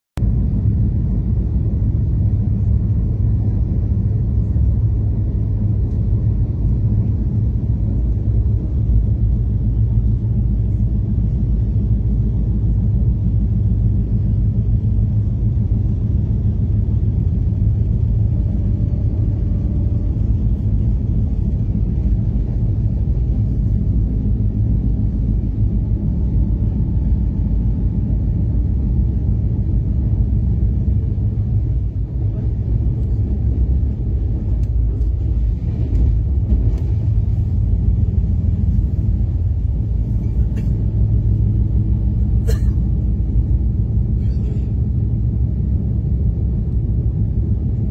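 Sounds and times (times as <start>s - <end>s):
train wheels rumbling on track: 0.2s - 47.9s.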